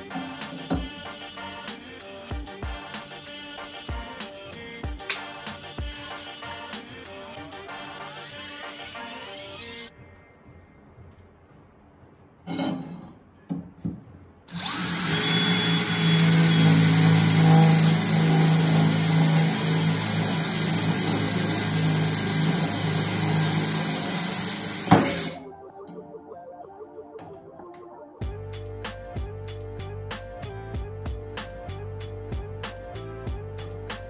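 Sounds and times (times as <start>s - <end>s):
cordless drill drilling steel: 14.5s - 25.4s.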